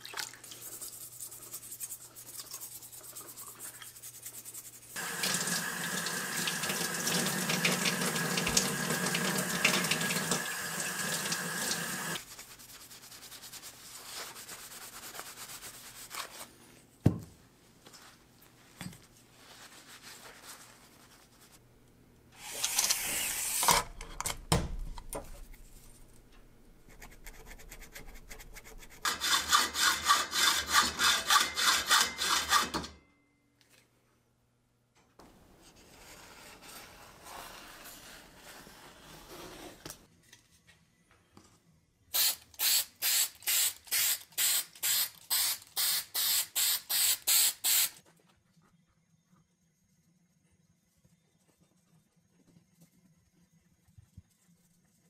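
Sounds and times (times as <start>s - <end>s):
hacksaw cutting: 29.0s - 32.9s.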